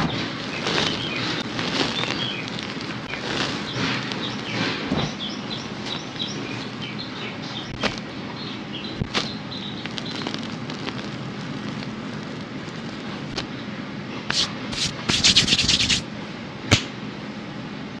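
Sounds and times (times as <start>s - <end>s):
hands crushing chalk: 0.0s - 6.9s, 7.6s - 8.1s, 8.9s - 13.5s, 14.3s - 16.0s
chalk pieces cracking: 0.2s - 4.7s, 9.0s - 13.5s, 14.3s - 16.0s.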